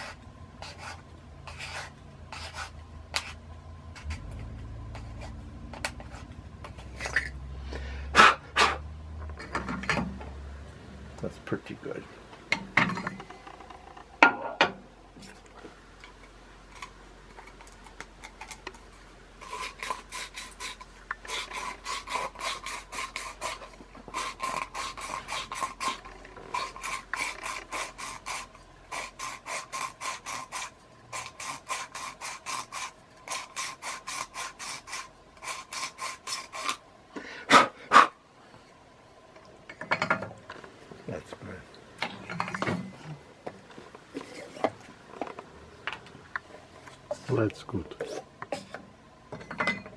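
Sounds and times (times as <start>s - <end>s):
rasping rubbing strokes: 0.0s - 7.4s, 19.4s - 36.8s.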